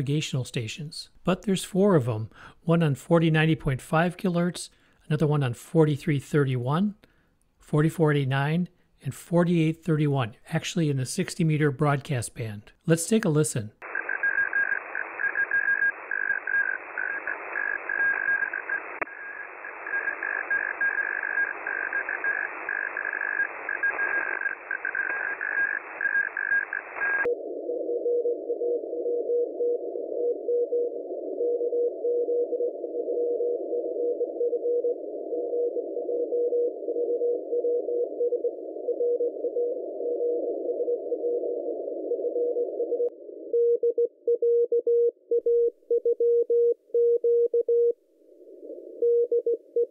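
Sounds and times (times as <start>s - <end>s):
morse code tone: 13.8s - 27.3s
radio static hiss: 13.8s - 27.3s.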